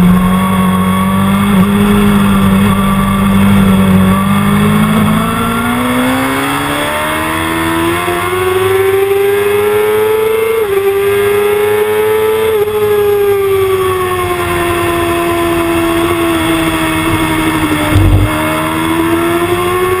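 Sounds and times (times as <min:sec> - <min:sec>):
motorcycle engine accelerating: 0:00.0 - 0:20.0
low thump: 0:17.0 - 0:18.5.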